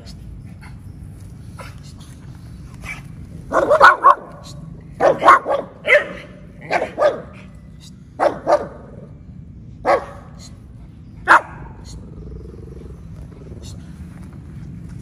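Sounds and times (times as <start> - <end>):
small dog barking: 3.5 - 7.5, 8.2 - 9.0, 9.8 - 10.5, 11.2 - 11.8.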